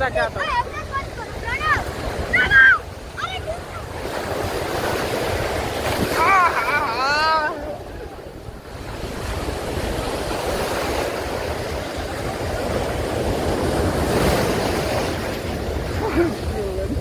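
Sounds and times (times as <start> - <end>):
sea surf breaking: 0.0 - 17.0.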